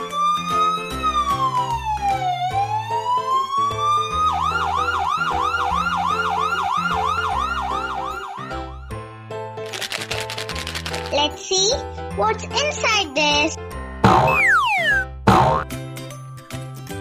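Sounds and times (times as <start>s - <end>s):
ambulance siren: 0.0s - 8.9s
background music: 0.0s - 17.0s.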